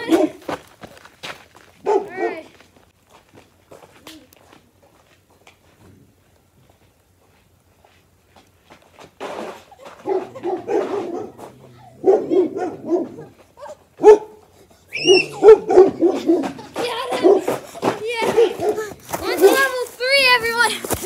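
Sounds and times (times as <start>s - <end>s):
dog barking: 0.1s - 0.4s, 1.8s - 2.4s, 10.0s - 13.3s, 14.0s - 14.4s, 15.0s - 17.6s, 18.2s - 18.9s.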